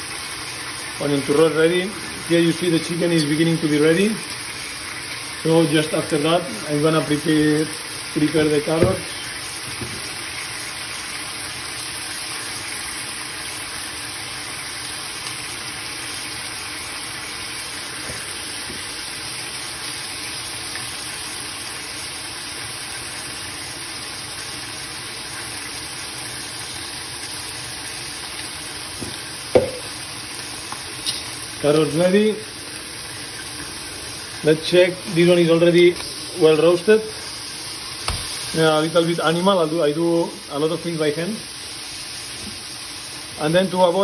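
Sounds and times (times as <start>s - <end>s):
chicken sizzling in frying pan: 0.0s - 44.0s
sharp knock: 29.6s - 29.8s.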